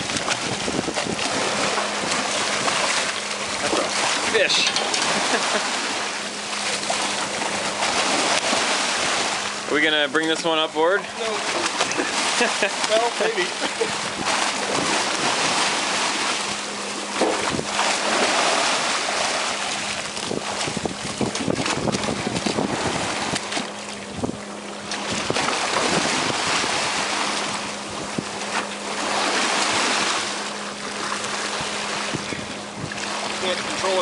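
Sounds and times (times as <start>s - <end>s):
wind on microphone: 0.0s - 2.9s, 13.8s - 15.6s, 17.2s - 17.8s, 20.1s - 27.0s, 31.5s - 33.1s
fish thrashing in water: 0.0s - 9.6s, 11.3s - 24.1s, 24.8s - 32.1s
boat wake splashing against hull: 0.0s - 34.0s
steady low hum: 0.0s - 34.0s.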